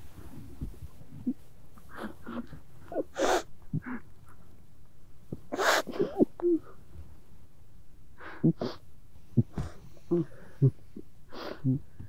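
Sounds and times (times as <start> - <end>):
person sobbing: 9.4 - 11.9.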